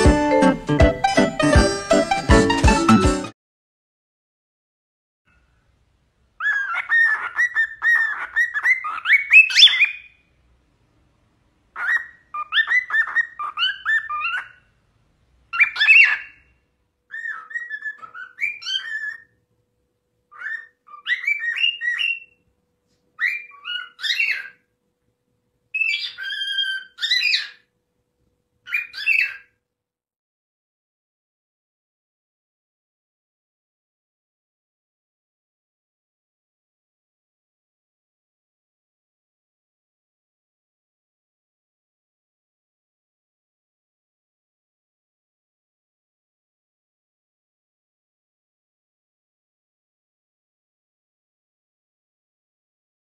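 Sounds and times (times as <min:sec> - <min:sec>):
cockatiel whistling: 0:06.4 - 0:10.1, 0:11.8 - 0:14.6, 0:15.6 - 0:16.4, 0:17.1 - 0:19.3, 0:20.3 - 0:22.4, 0:23.2 - 0:24.6, 0:25.8 - 0:27.6, 0:28.7 - 0:29.5.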